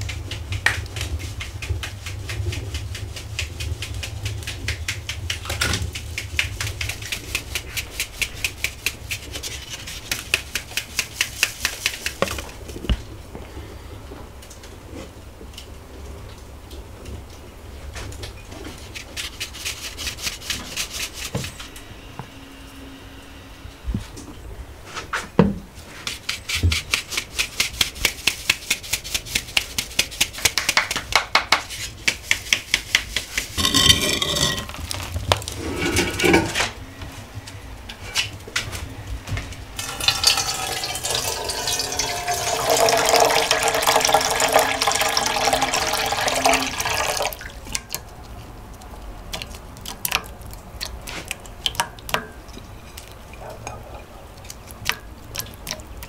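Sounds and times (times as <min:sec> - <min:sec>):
wooden sieve rattling: 0:33.2 - 0:36.7, 0:39.8 - 0:47.5
water pouring into vessel: 0:39.8 - 0:47.6.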